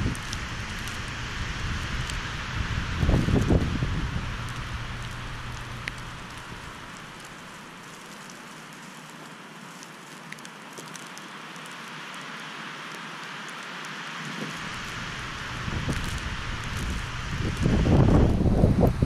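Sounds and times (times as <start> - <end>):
wind gust rumble on microphone: 0.0 - 7.7, 14.2 - 19.0
wind-driven snow hissing: 0.0 - 19.0
faint ticks: 4.4 - 14.0.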